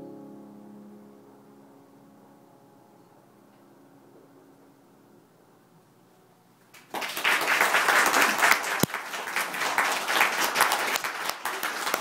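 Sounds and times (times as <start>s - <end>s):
audience applause: 6.7s - 12.0s.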